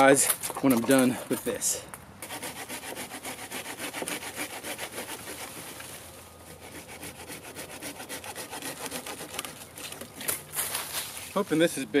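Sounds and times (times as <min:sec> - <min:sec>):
hand saw cutting wood: 0:02.2 - 0:10.8.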